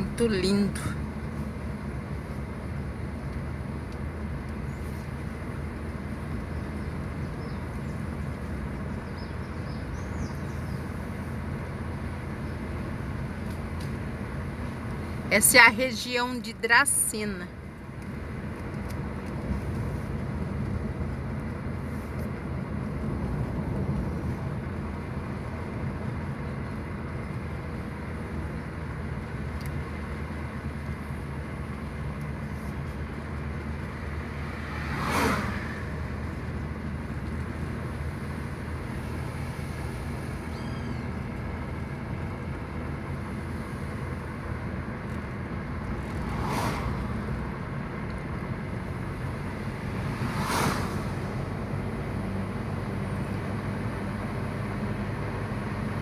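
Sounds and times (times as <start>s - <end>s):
car engine and tyre noise: 0.0s - 56.0s
oncoming car whooshing past: 34.2s - 36.4s, 46.0s - 47.4s, 49.7s - 51.6s.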